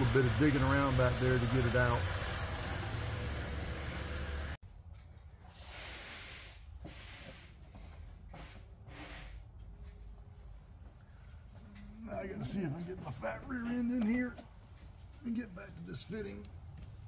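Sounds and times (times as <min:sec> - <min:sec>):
air hissing: 0:00.0 - 0:04.6, 0:05.5 - 0:07.6.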